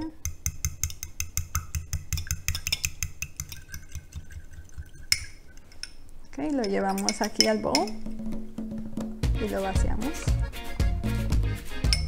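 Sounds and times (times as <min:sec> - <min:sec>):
fork clicking against glass bowl: 0:00.2 - 0:08.0.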